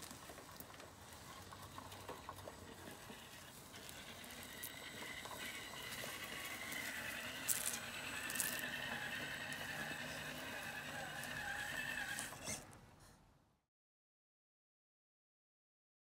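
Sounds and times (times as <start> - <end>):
toy truck motor whine: 1.3 - 12.8
leaves and twigs crackling: 6.0 - 8.7.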